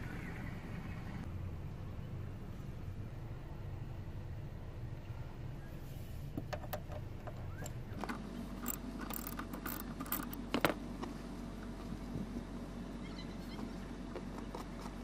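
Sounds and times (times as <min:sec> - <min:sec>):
metal clinking: 0:08.6 - 0:10.4
ratchet wrench clicking: 0:08.6 - 0:10.4.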